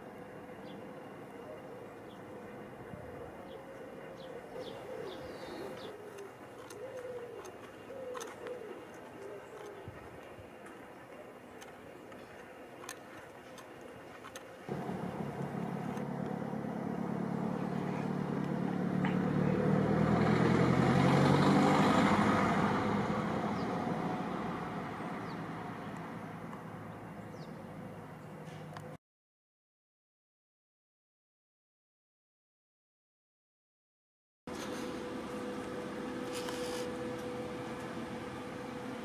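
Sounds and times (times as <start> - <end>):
vehicle engine passing by: 14.7 - 28.6.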